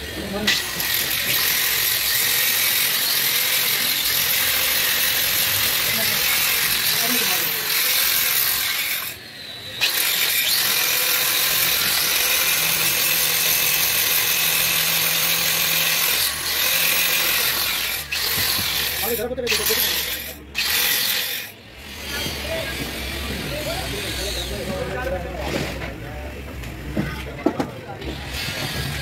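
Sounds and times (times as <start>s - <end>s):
angle grinder grinding metal: 0.0s - 25.2s, 28.0s - 29.0s.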